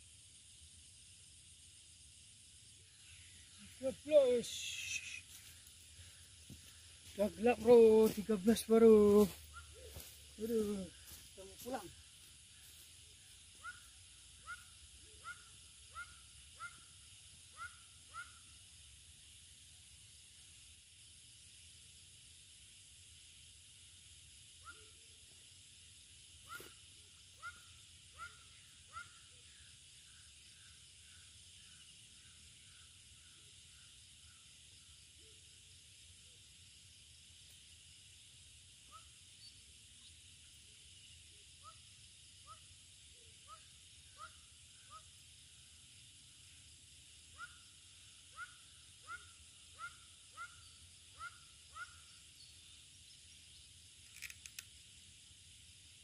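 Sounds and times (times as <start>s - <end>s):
faint high insect drone: 0.0s - 56.0s
faint clicks: 54.0s - 54.7s.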